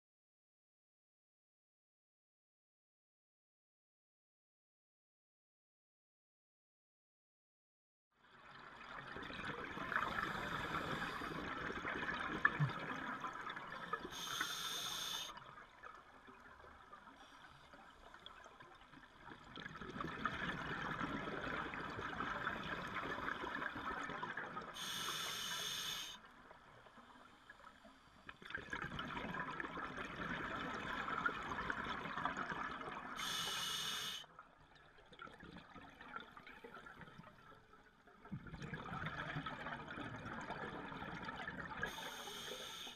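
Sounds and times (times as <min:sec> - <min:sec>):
diver breathing through regulator: 0:10.1 - 0:11.5, 0:14.1 - 0:15.3, 0:24.8 - 0:26.2, 0:33.2 - 0:34.3, 0:41.9 - 0:42.9
short high hiss: 0:33.2 - 0:34.2.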